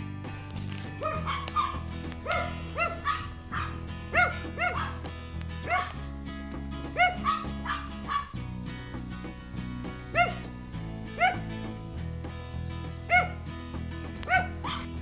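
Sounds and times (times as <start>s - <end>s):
background music: 0.0s - 15.0s
small dogs yapping: 1.0s - 6.0s, 6.9s - 8.4s, 10.1s - 10.5s, 11.2s - 11.5s, 13.1s - 13.4s, 14.2s - 15.0s.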